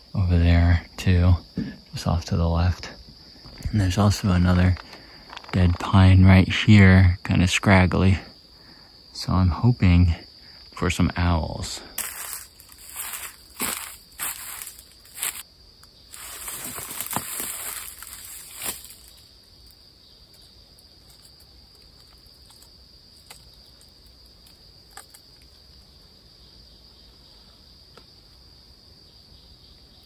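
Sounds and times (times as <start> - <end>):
high-pitched insect chorus: 0.0 - 30.0
footsteps in dry leaves: 11.9 - 15.4, 16.1 - 19.2.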